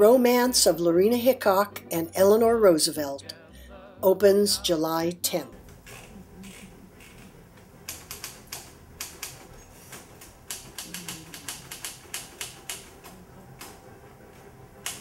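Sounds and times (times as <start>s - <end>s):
typewriter keys striking: 7.9s - 13.8s.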